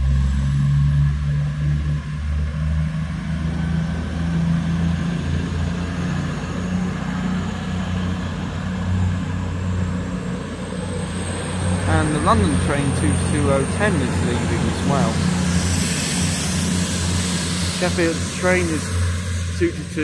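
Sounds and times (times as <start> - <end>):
diesel train engine drone: 0.0 - 20.0.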